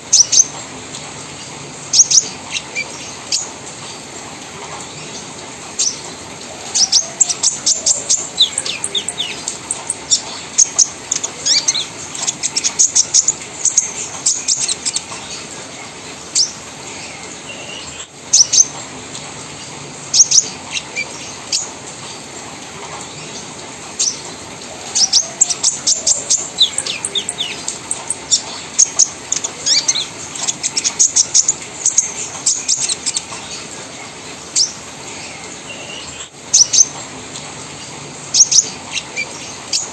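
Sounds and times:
bird chirping and trilling: 1.9 - 3.6, 6.6 - 18.8, 20.1 - 21.7, 24.0 - 33.8, 34.5 - 37.0, 38.3 - 39.9.

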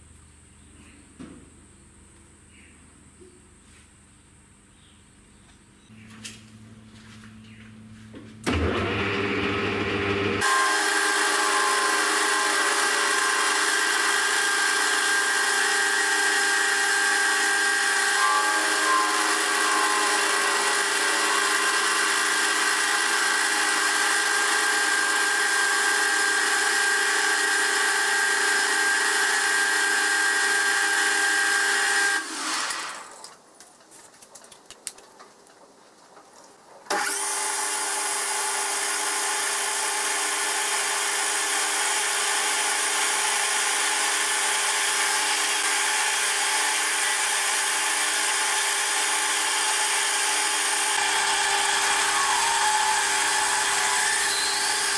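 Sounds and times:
metal lathe whine: 10.4 - 32.2, 41.9 - 54.9.

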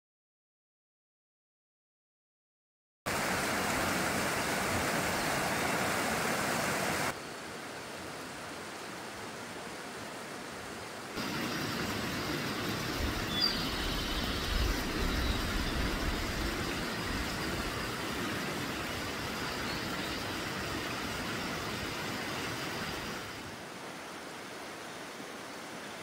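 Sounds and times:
waterfall splashing on rock: 11.2 - 23.4.

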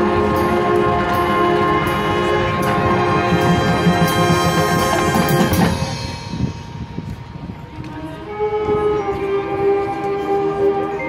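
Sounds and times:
brass sustained chords: 0.0 - 6.9
marching band playing: 0.0 - 11.0
drum strokes: 0.3 - 7.4.

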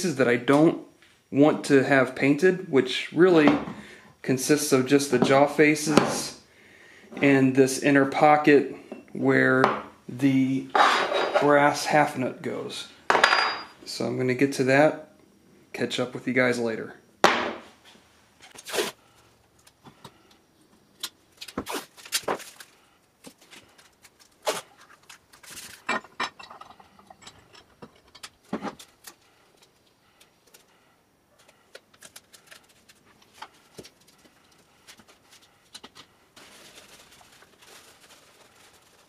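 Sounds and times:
metal parts clinking: 25.4 - 29.2.

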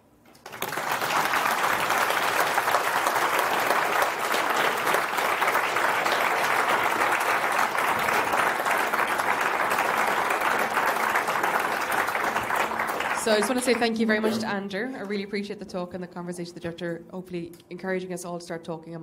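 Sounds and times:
audience applauding: 0.3 - 14.4.

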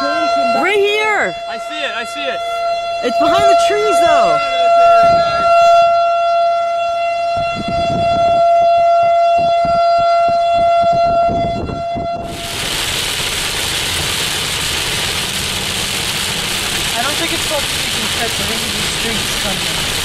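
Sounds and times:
warning siren steady tone: 0.0 - 20.0
low rumbling: 2.5 - 20.0
heavy rain on a moving car: 12.3 - 20.0.

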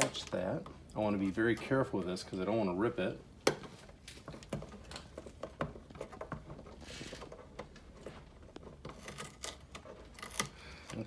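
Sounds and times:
rustling of hands on tape: 3.6 - 11.0.

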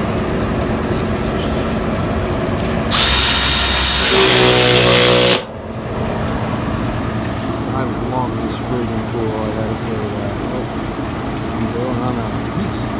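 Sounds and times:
cordless ratchet motor whine: 2.6 - 5.6, 7.1 - 12.9.

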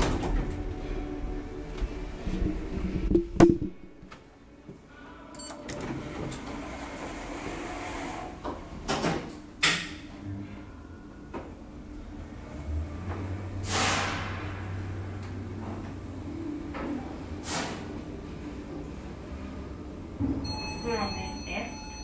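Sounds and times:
elevator mechanical hum: 0.0 - 22.0.

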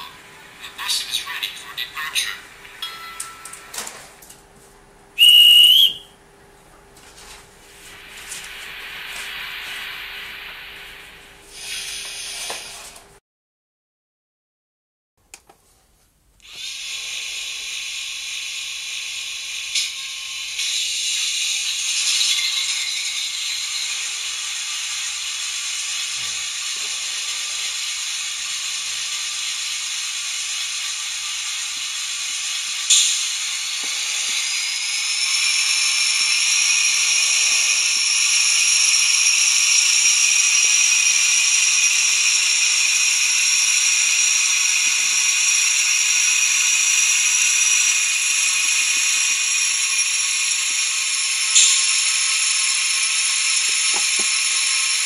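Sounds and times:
model diesel engine sound: 16.5 - 55.0
sharp click: 32.9 - 33.3.

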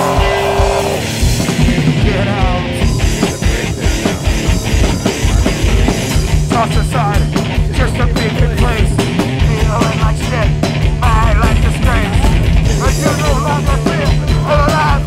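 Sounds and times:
screamed vocals: 0.0 - 1.0
pounding drums: 0.0 - 15.0
screamo rock song: 0.0 - 15.0.

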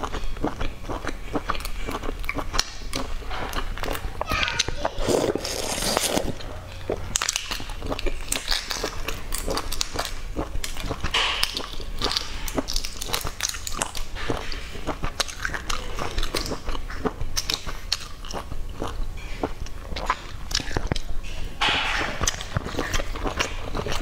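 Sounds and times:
chewing: 0.0 - 24.0
eggshells crackling: 0.9 - 16.7.

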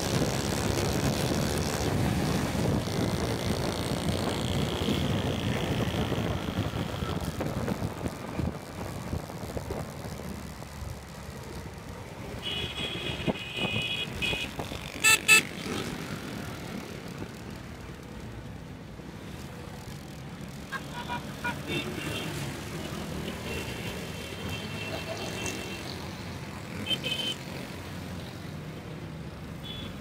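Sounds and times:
traffic rumble and wind: 0.0 - 30.0
high beeping car horn: 12.4 - 15.5, 29.6 - 30.0
loud car horn honks: 12.4 - 15.5, 29.6 - 30.0.

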